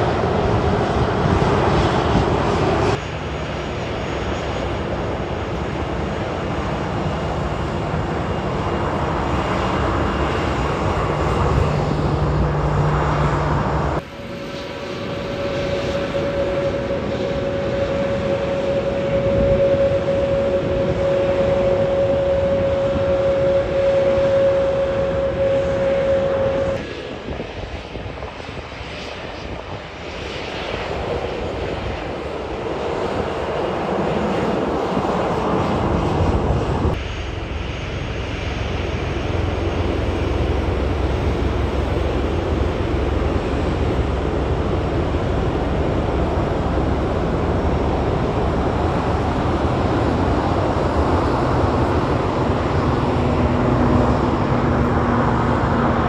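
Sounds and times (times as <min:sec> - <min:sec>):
jet engine rush: 0:00.0 - 0:56.0
jet engines humming: 0:00.0 - 0:56.0
jet engines low rumble: 0:00.0 - 0:56.0.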